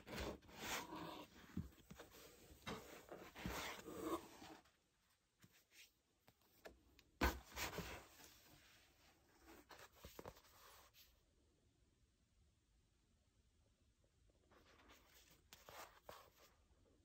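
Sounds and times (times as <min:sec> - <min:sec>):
books sliding against cardboard box: 0:00.0 - 0:04.6.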